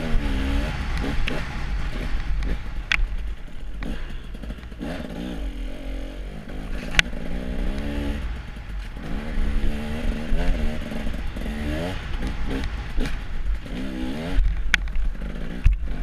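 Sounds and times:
snowmobile engine revving: 0.0 - 14.5.

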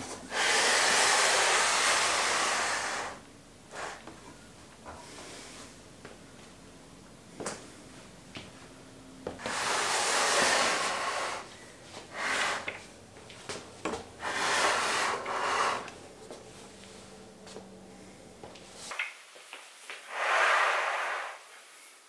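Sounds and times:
wood scraping on wooden floor: 9.3 - 11.5, 13.9 - 16.0.

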